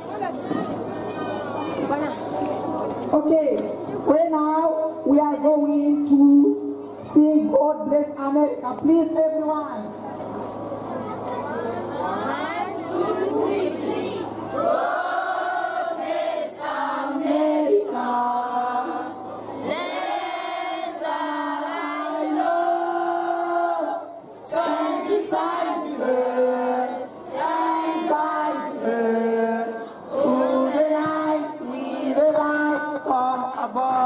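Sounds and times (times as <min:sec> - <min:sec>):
group singing an anthem: 0:14.5 - 0:34.0.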